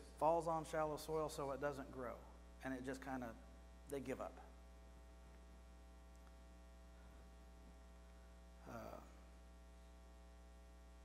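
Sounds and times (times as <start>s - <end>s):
low electrical hum: 0.0s - 11.0s
brief vocal sound: 8.6s - 9.2s.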